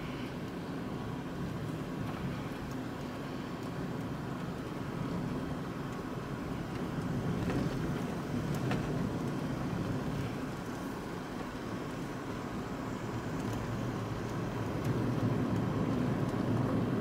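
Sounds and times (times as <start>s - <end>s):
tyre and road noise: 0.0s - 17.0s.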